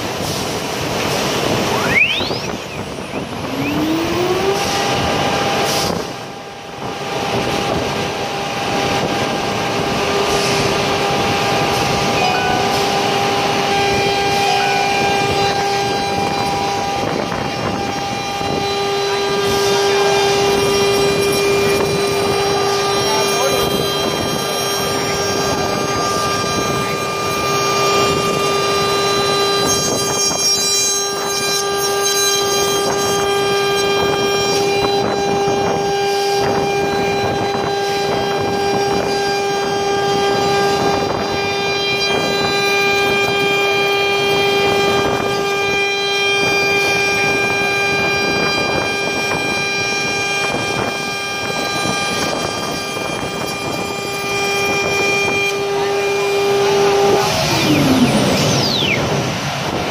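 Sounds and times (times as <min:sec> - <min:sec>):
router spindle high-pitched whine: 0:00.0 - 0:59.9
bit cutting wood: 0:12.5 - 0:35.7.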